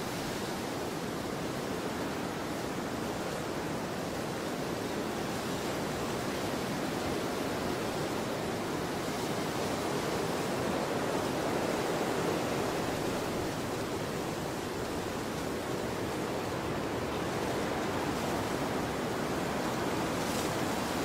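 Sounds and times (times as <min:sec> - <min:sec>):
surf: 0:00.0 - 0:21.0
wind: 0:00.0 - 0:21.0.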